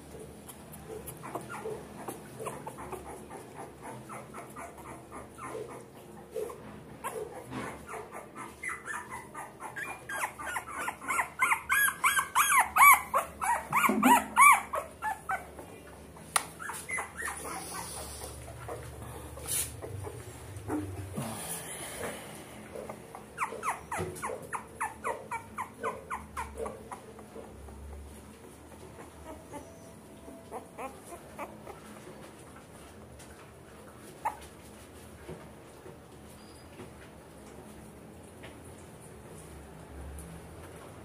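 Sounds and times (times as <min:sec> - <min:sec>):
puppy whimpering and squealing: 0:00.4 - 0:15.7, 0:16.6 - 0:21.0, 0:23.1 - 0:27.3, 0:28.8 - 0:31.9, 0:34.2 - 0:34.5.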